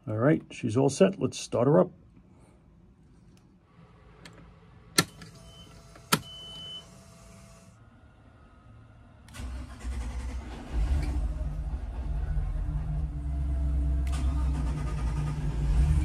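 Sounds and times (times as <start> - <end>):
boat engine starting and running: 9.3 - 16.0.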